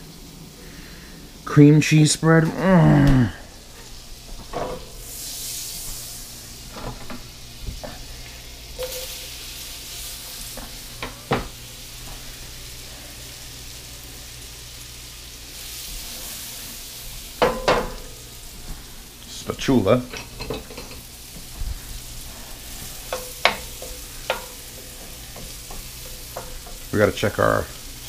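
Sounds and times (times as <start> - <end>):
food sizzling in a frying pan: 0.0 - 28.0
utensil knocking against a pan: 17.4 - 18.0, 23.1 - 24.6.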